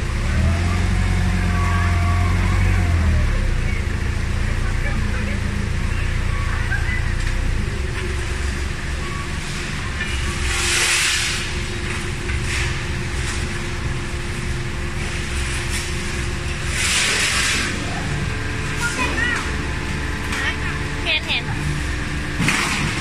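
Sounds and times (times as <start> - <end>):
forklift engine running: 0.0 - 23.0.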